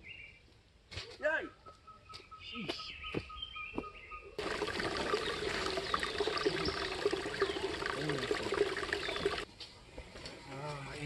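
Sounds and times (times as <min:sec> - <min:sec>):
stream trickling over rocks: 0:04.4 - 0:09.5.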